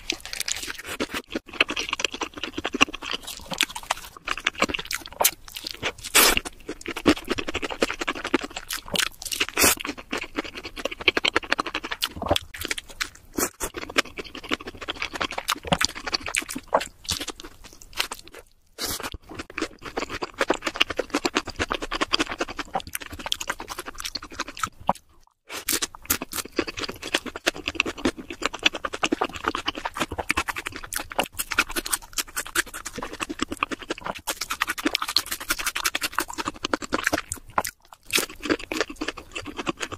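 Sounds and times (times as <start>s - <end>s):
chewing crispy fried food: 0.0s - 39.9s.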